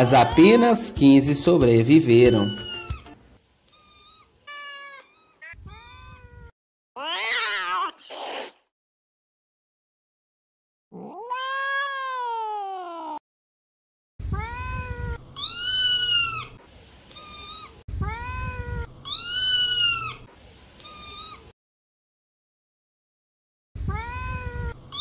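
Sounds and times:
cat meowing: 2.3 - 3.1, 3.7 - 8.5, 10.9 - 13.2, 14.2 - 21.5, 23.8 - 25.0.

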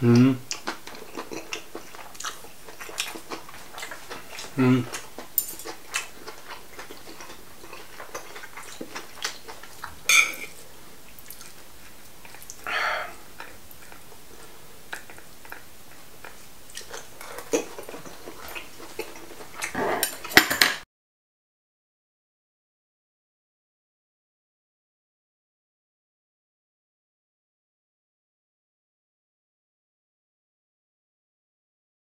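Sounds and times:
chewing and biting: 0.5 - 12.6, 13.4 - 20.4.

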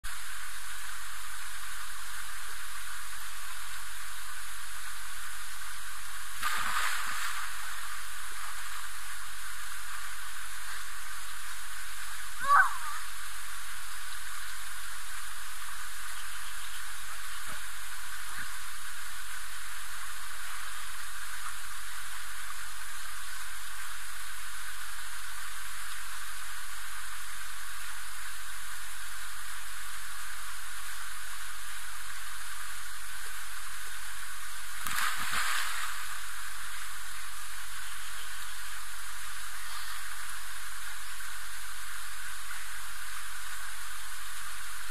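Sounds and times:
steady hiss: 0.1 - 44.9.

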